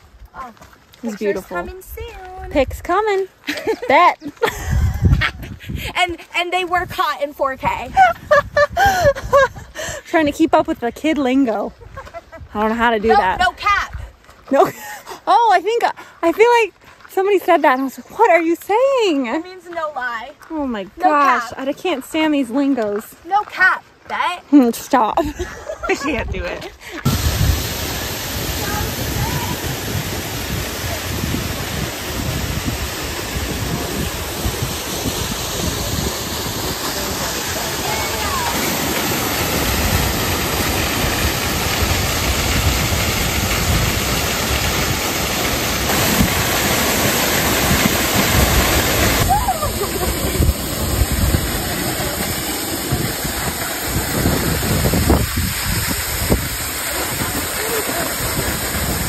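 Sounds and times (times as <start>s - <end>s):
wind buffeting microphone: 0.0s - 14.3s, 25.2s - 59.0s
waterfall rushing: 27.0s - 59.0s.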